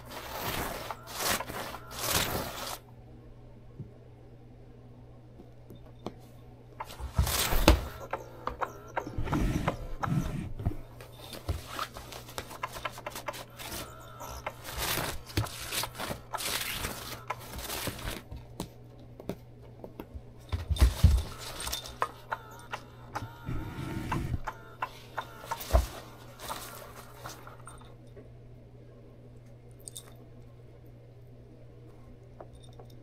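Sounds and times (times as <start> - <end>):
fabric mat rustling on floor: 0.0 - 2.8, 6.9 - 8.0, 10.6 - 18.5, 25.4 - 27.5.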